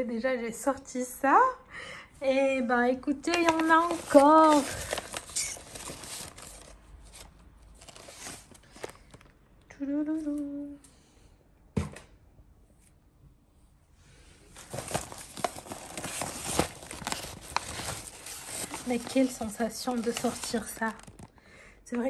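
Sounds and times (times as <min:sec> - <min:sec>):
paper bags rustling: 0:03.3 - 0:09.3, 0:14.6 - 0:21.3.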